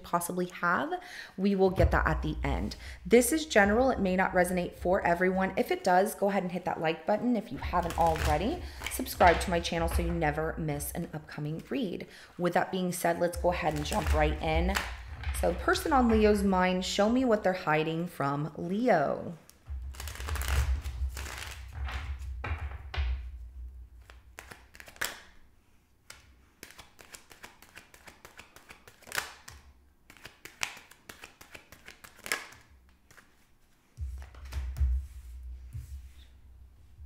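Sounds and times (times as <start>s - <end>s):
cards riffling and clicking: 19.5s - 21.7s, 24.0s - 25.4s, 26.0s - 33.5s
sharp card snaps: 26.1s - 33.3s.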